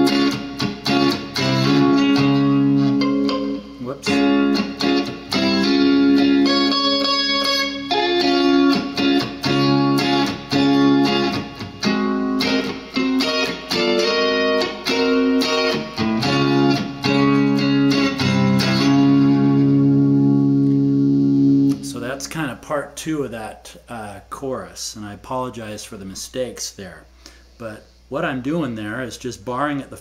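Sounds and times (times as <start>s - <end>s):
electric guitar chord stabs: 0.0s - 22.3s.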